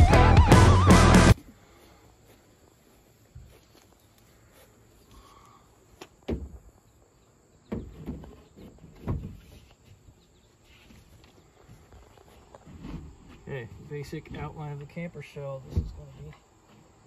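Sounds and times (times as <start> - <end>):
faint outdoor background: 0.0 - 17.0
plywood sheet dull thumps: 7.7 - 10.0, 15.7 - 16.9.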